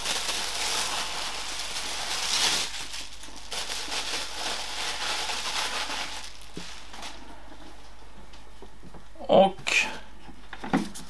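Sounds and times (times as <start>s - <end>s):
plastic packaging rustling: 0.0s - 8.0s.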